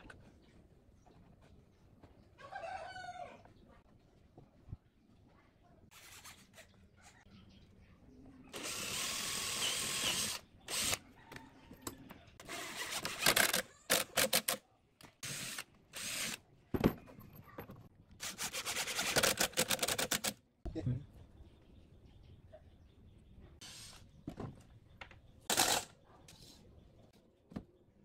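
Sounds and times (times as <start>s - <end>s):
cordless drill running into wood: 8.6s - 11.0s, 12.4s - 14.6s, 15.2s - 16.4s.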